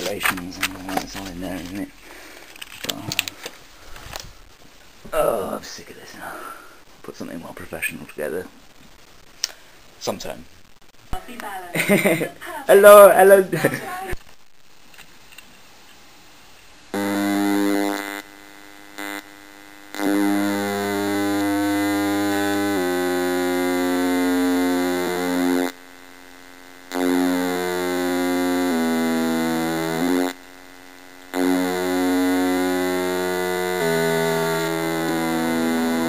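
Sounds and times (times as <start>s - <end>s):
buzzy synthesized tones: 17.0s - 25.9s, 26.9s - 36.0s.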